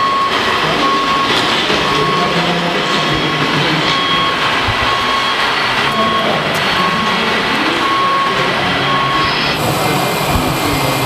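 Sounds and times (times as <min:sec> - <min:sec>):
dense mechanical noise: 0:00.0 - 0:11.0
high-pitched steady whine: 0:00.0 - 0:11.0
whining electric model truck motors: 0:03.8 - 0:11.0.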